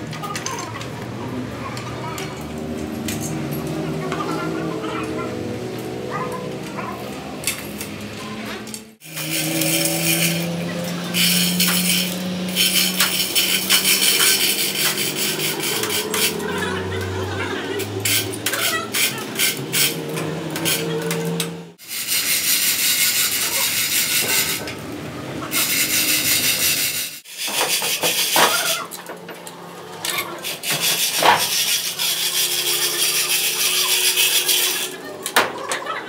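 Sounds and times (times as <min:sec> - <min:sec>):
metal rattling and rasping: 0:08.9 - 0:24.8, 0:25.5 - 0:36.0.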